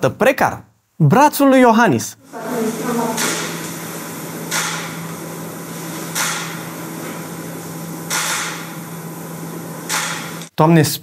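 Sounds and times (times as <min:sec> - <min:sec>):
steady low hum: 0:02.2 - 0:10.6.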